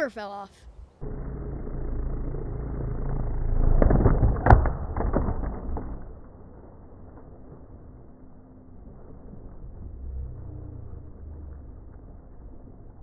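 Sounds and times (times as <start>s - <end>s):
rc airboat motors rumbling: 1.0s - 4.6s
sharp crack: 3.5s - 7.7s.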